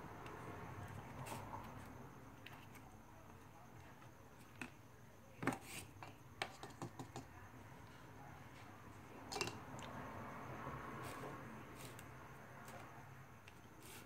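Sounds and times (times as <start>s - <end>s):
plastic spoons tapping plastic tub: 6.4s - 7.3s.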